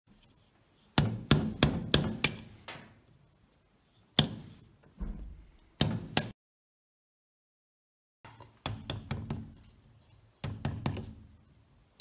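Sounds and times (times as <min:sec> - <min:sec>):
wooden mallet striking gouge: 0:01.0 - 0:02.6, 0:04.2 - 0:04.6, 0:05.8 - 0:06.4, 0:08.3 - 0:09.6.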